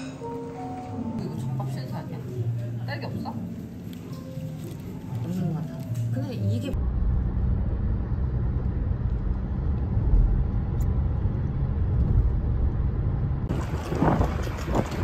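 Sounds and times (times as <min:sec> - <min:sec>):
wind gusts on microphone: 0:13.4 - 0:15.0.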